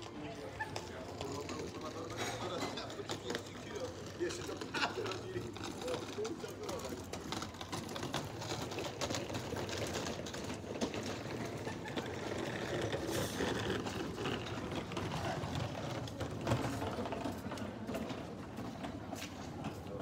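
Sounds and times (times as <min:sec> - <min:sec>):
suitcase wheels rattling on stone: 0:00.0 - 0:20.0.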